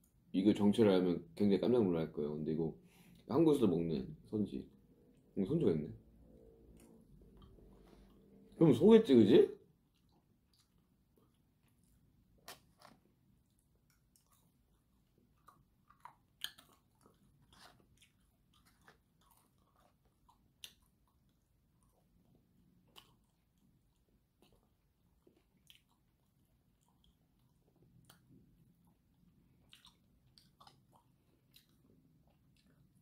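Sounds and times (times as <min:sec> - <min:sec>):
person chewing food: 0:06.3 - 0:08.6, 0:09.7 - 0:33.0.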